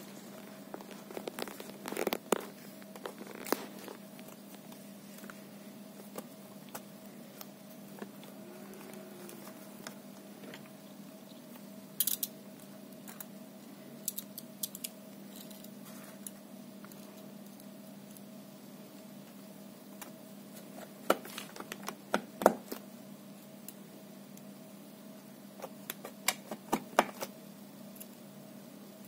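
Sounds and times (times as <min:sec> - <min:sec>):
steady hum: 0:00.0 - 0:29.0
hands handling laptop parts: 0:20.0 - 0:22.9, 0:25.6 - 0:27.3.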